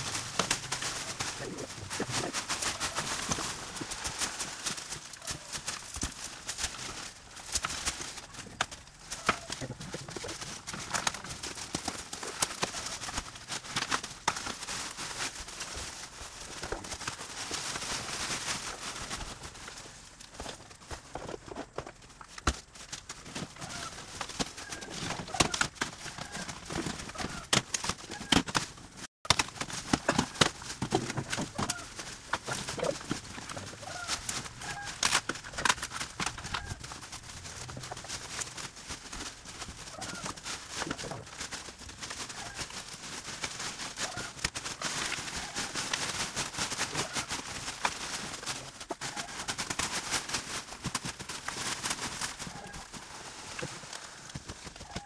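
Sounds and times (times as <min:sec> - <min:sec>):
scratchy noise: 0:00.0 - 0:05.8.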